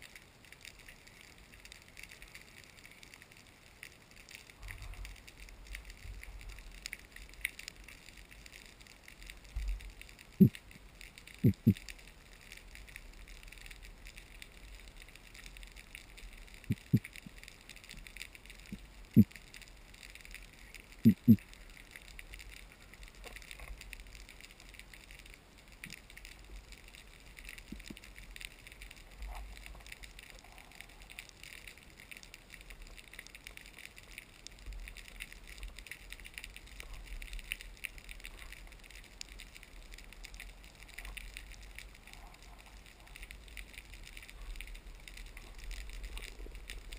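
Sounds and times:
faint underwater crackling hiss: 0:00.0 - 0:46.9
short low thumps: 0:11.4 - 0:11.8.

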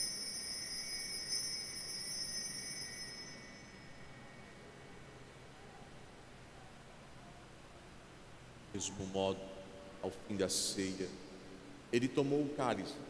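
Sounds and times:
altar bells ringing: 0:00.0 - 0:04.6.

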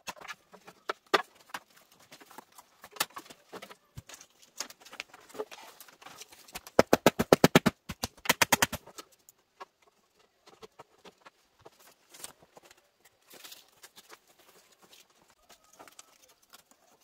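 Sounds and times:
bamboo knocking and rattling: 0:00.0 - 0:17.0.

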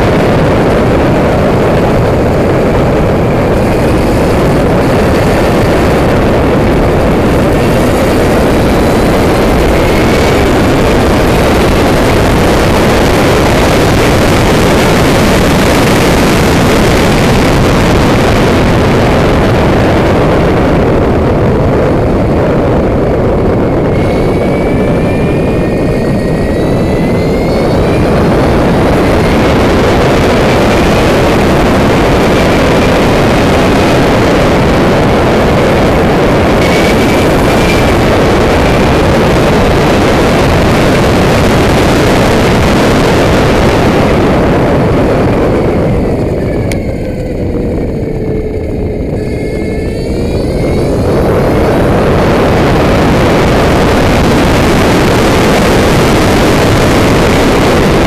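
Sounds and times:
electric motor whine: 0:00.0 - 0:58.0
wind rushing over microphone: 0:00.0 - 0:58.0.

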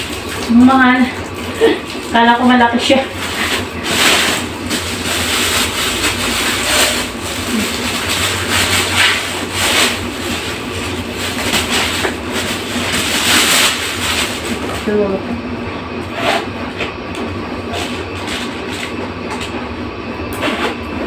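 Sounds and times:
plastic bag rustling: 0:00.0 - 0:15.2.

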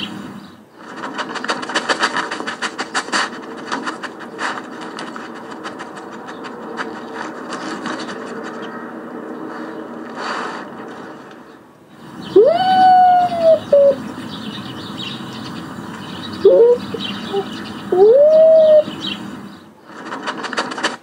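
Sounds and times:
steady hiss: 0:00.0 - 0:07.1, 0:09.4 - 0:20.2
raccoon dog whining: 0:12.2 - 0:14.1, 0:16.4 - 0:19.0
raccoon dog yelps: 0:12.4 - 0:14.0, 0:16.4 - 0:18.9.

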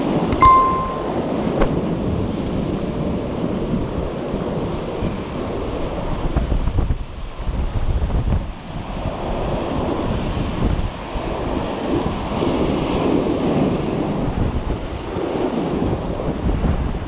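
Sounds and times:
click: 0:00.3 - 0:01.1
bell-like ding: 0:00.4 - 0:01.4.

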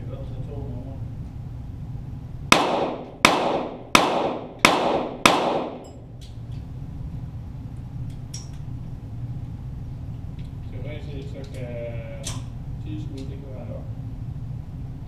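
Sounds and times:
pistol shots with echo: 0:02.5 - 0:06.0.

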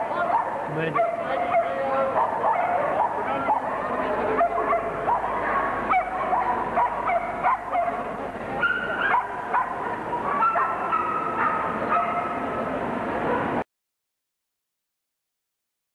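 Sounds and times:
dogs yipping and whining: 0:08.6 - 0:12.4.

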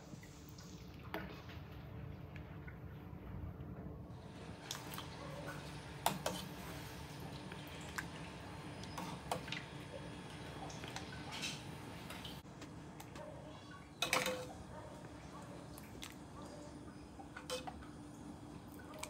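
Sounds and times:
soup dripping and splashing: 0:07.1 - 0:12.4, 0:15.6 - 0:19.0.

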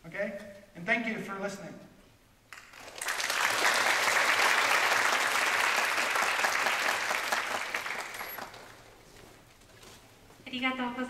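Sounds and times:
audience applauding: 0:02.5 - 0:09.0.

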